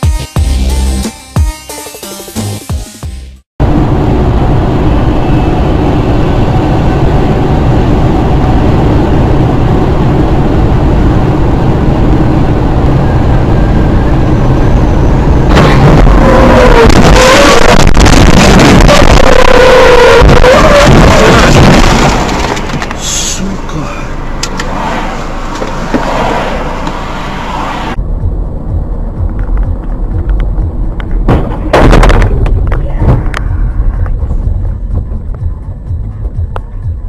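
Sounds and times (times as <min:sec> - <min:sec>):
vehicle engine and road rumble: 0:03.6 - 0:37.0.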